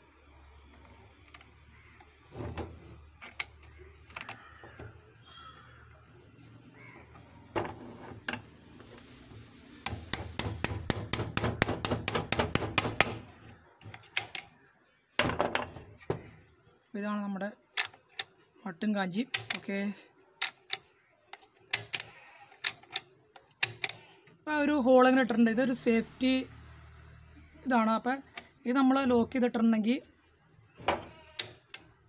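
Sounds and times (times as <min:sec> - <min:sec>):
knocks and clicks of metal parts: 0:09.8 - 0:14.5, 0:15.2 - 0:16.3, 0:20.4 - 0:24.1, 0:30.8 - 0:31.9.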